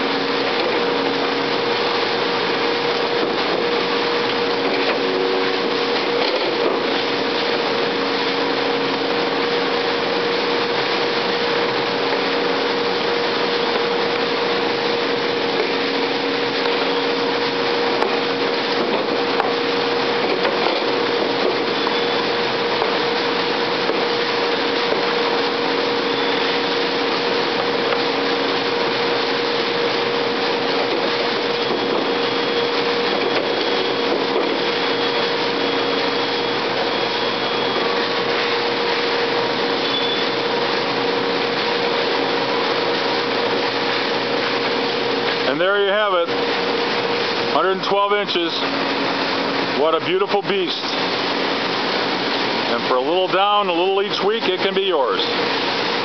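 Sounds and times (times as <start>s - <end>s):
paper cutter machine humming: 0.0s - 56.0s
steady mid-pitched tone: 45.4s - 48.8s.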